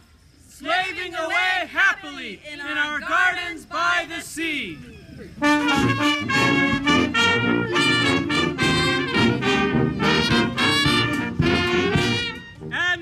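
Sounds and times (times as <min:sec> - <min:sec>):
brass band playing: 0:05.4 - 0:13.0.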